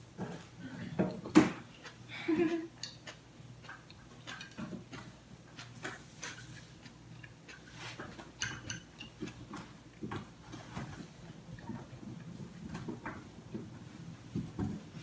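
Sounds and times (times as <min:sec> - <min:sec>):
person chewing crunchy food: 0:01.6 - 0:10.5.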